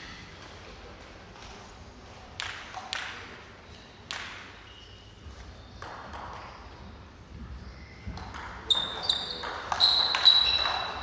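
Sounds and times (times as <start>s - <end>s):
table tennis ball clicks: 2.4s - 3.4s, 4.1s - 4.6s, 8.1s - 11.0s.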